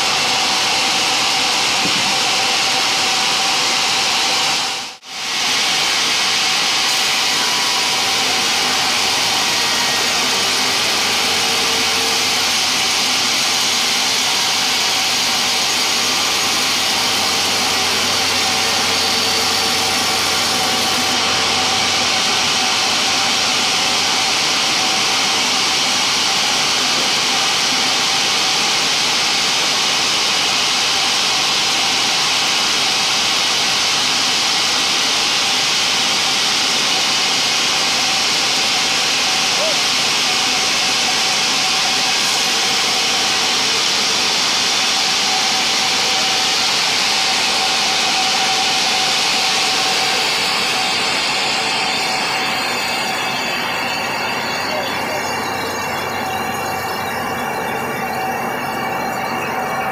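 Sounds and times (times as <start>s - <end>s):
band saw cutting log: 0.0s - 34.4s.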